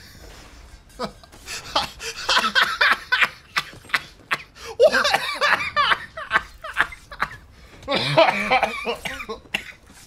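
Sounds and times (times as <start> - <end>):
man laughing: 0.9 - 9.5.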